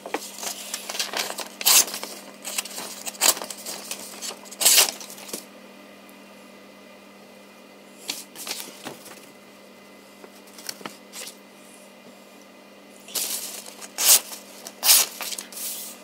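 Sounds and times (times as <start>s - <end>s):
paper rustling and sliding: 0.0s - 5.4s, 8.0s - 9.3s, 10.4s - 11.4s, 13.1s - 16.0s.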